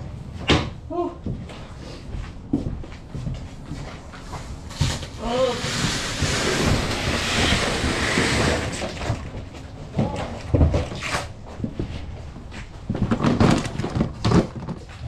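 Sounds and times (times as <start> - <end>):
bins thudding on truck floor: 12.9 - 15.0.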